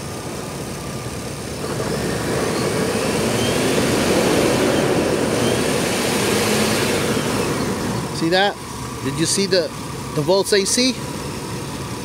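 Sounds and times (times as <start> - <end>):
car engine revving: 1.4 - 10.3.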